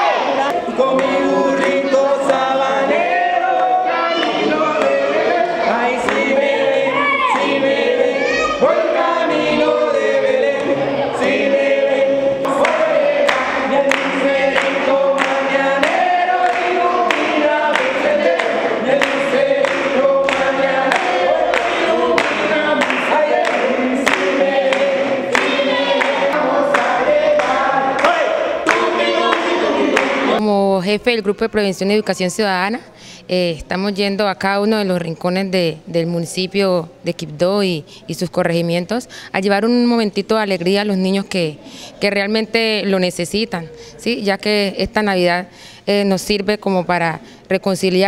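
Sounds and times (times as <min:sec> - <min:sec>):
group of voices singing: 0:00.0 - 0:30.4
rhythmic hand clapping: 0:00.5 - 0:03.1, 0:04.1 - 0:07.9, 0:09.0 - 0:11.7, 0:12.4 - 0:30.4.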